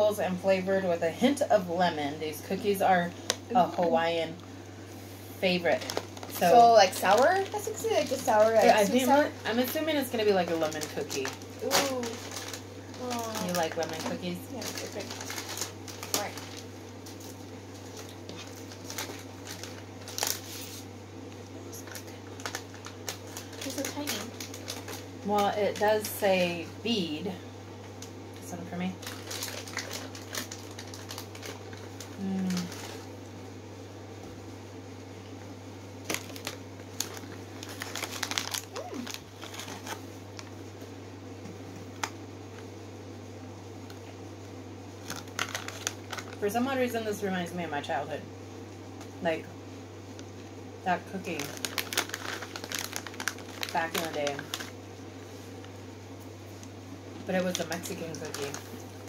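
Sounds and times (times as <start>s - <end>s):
steady low hum: 0.0s - 59.0s
plastic wrapper crinkling: 5.7s - 20.9s, 21.7s - 26.2s, 29.0s - 33.2s, 36.0s - 40.6s, 45.0s - 46.5s, 51.1s - 54.8s, 57.2s - 59.0s
paper rustling: 10.6s - 20.9s, 36.1s - 40.0s.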